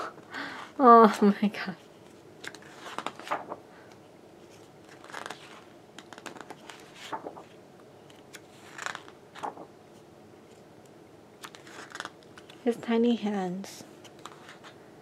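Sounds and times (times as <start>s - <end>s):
book pages turning: 2.0s - 10.7s, 11.4s - 12.7s, 14.0s - 14.8s.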